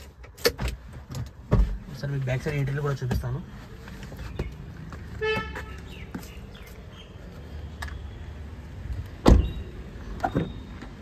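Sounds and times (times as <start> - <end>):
car door shutting: 9.2 - 11.0.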